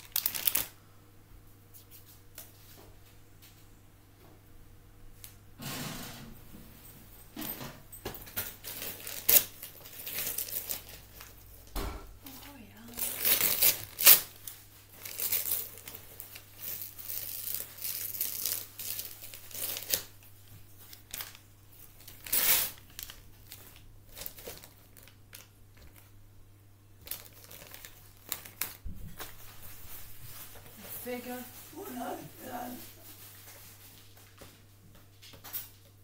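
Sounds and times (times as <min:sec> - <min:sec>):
wrapping paper tearing and crumpling: 0:00.0 - 0:00.8, 0:08.6 - 0:11.4, 0:12.5 - 0:26.1, 0:27.0 - 0:34.0.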